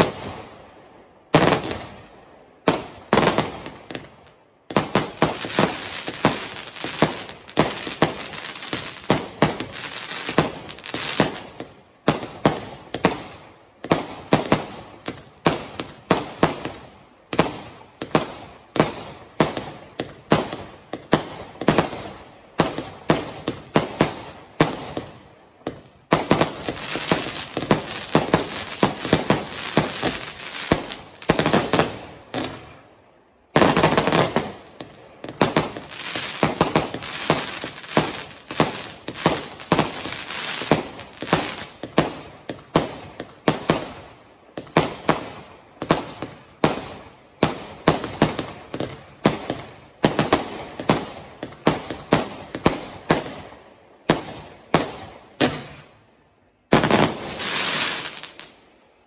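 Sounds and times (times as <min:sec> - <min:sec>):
firework crackle: 0:02.6 - 0:32.9, 0:33.5 - 0:53.4, 0:56.7 - 0:58.6
firework bangs: 0:04.7 - 0:13.3, 0:25.7 - 0:32.8, 0:33.5 - 0:44.0, 0:56.7 - 0:58.5.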